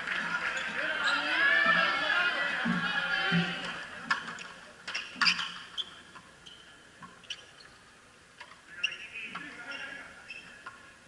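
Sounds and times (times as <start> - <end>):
shoe squeaks: 4.9 - 7.9, 8.7 - 10.6.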